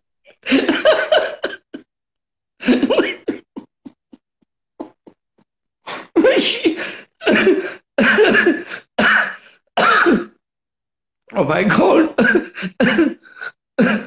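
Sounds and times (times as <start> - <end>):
man laughing hard: 0.4 - 1.8, 2.6 - 4.2.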